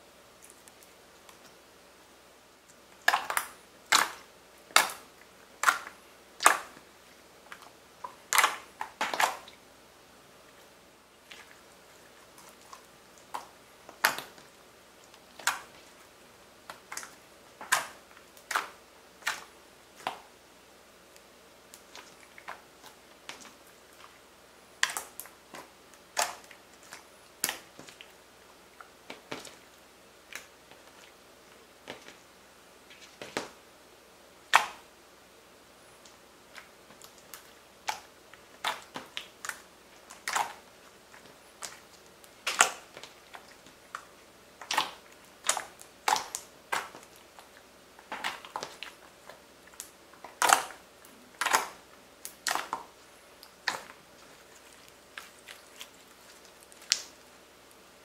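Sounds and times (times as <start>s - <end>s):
slime clicking and popping: 49.8s - 50.8s, 51.4s - 53.9s, 56.6s - 57.1s.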